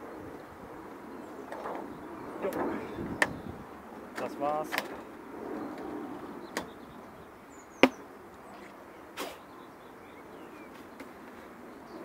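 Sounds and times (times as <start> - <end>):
honeybees buzzing: 0.7 - 8.3
hive boxes knocking: 7.8 - 8.0.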